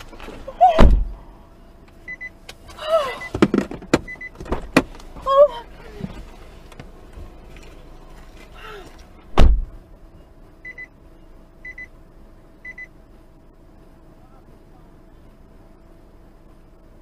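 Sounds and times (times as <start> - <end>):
heavy thump: 0.8 - 1.2, 9.3 - 9.8
car warning chime double beep: 2.1 - 2.4, 3.1 - 3.4, 4.0 - 4.4, 10.6 - 11.0, 11.6 - 12.0, 12.6 - 13.0.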